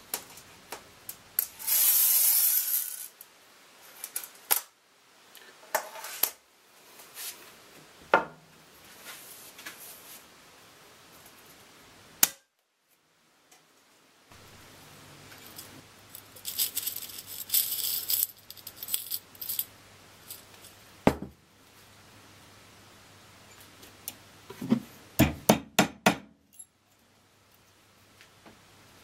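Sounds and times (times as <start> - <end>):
metal hangers rattling in glass jar: 15.4 - 20.7.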